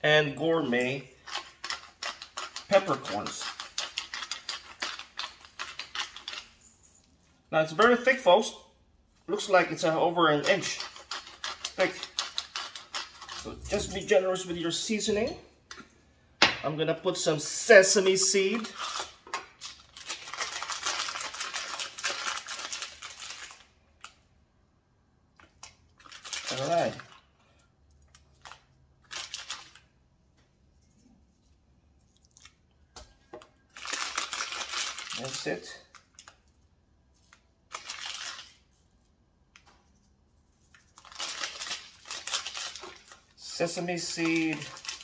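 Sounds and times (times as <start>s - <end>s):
seeds rattling in shaker: 1.2s - 6.8s, 33.8s - 35.8s, 40.0s - 45.0s.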